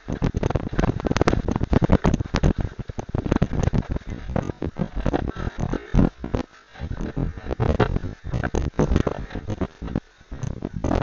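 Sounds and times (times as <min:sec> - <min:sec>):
camera rubbing and jolting: 0:00.0 - 0:11.0.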